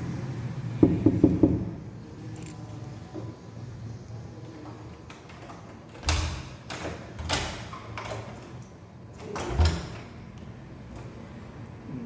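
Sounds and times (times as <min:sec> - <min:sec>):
knocks on a door: 0:00.8 - 0:01.8.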